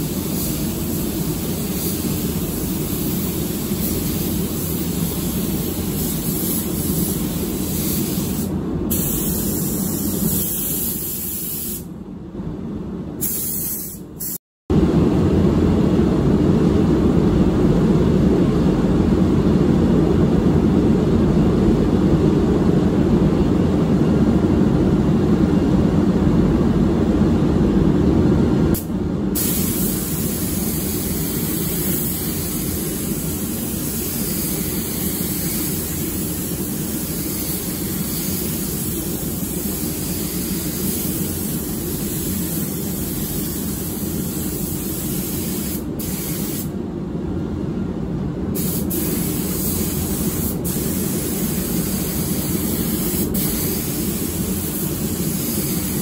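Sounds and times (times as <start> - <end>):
spray gun hissing: 0.0 - 11.9, 13.2 - 14.4, 29.4 - 46.7, 48.6 - 56.0
ventilation air rushing: 0.0 - 56.0.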